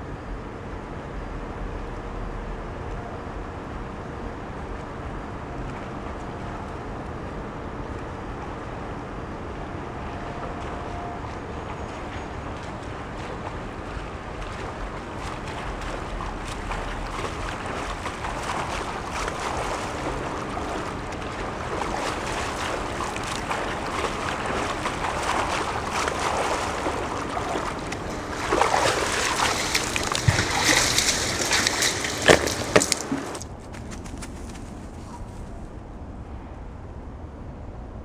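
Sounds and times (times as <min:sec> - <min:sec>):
swimmer splashing water: 0:04.6 - 0:34.0.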